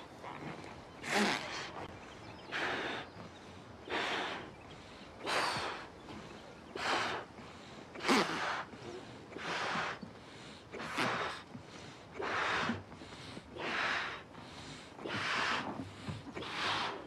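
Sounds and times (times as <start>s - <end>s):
loud gasping breaths: 6.8s - 17.0s.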